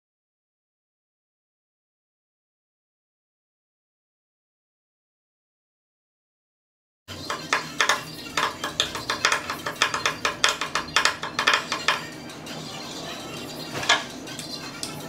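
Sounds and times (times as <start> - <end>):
hand tool rapid clicking: 7.3 - 12.1.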